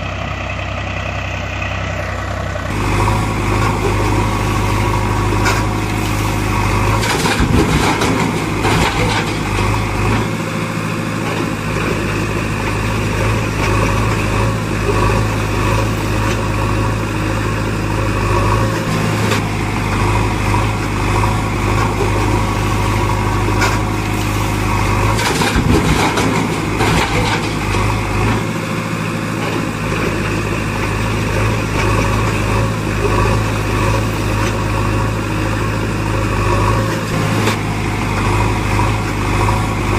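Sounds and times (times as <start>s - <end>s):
heavy machine engine idling: 0.0s - 39.9s.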